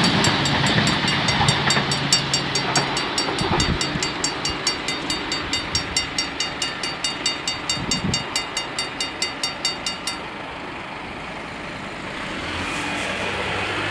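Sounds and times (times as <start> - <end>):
level crossing bells ringing: 0.0 - 10.5
outdoor noise: 0.0 - 13.9.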